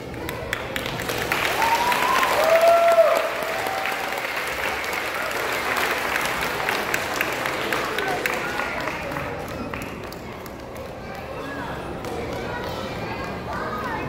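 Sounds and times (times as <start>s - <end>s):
audience applauding: 0.1s - 11.0s.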